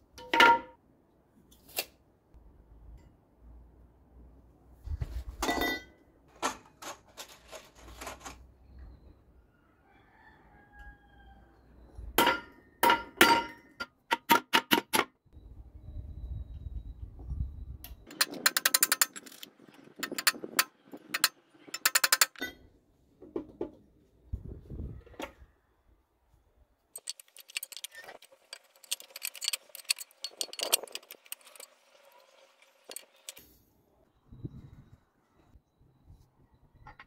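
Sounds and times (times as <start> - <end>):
hammer striking nails through metal: 12.2 - 15.1.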